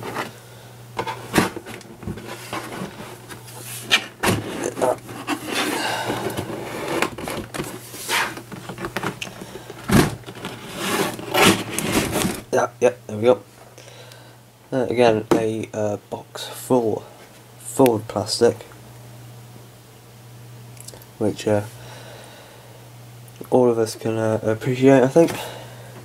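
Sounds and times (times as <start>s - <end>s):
cardboard scraping and sliding: 1.0s - 9.2s, 9.9s - 12.5s.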